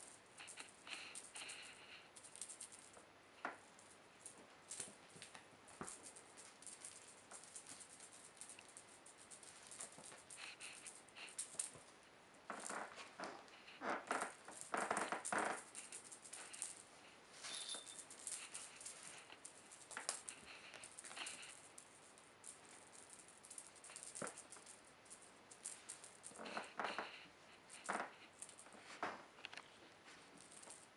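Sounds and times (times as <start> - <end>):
feathers rustling: 15.7 - 21.6.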